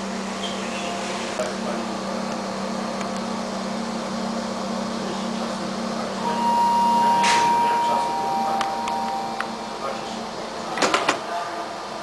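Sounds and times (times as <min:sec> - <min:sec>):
train electrical hum: 0:00.0 - 0:12.0
steady high tone: 0:06.2 - 0:10.8.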